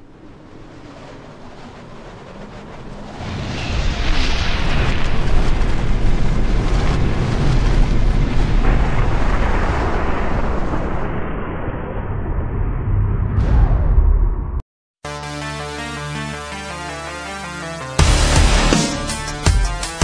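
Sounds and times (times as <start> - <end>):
explosion-like blast with rumble: 3.1 - 14.6.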